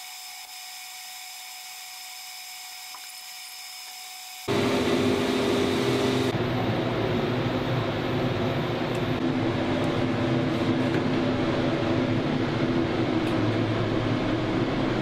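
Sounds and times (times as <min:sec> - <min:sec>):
high whine of machinery: 0:00.0 - 0:15.0
loud mechanical running noise: 0:03.9 - 0:15.0.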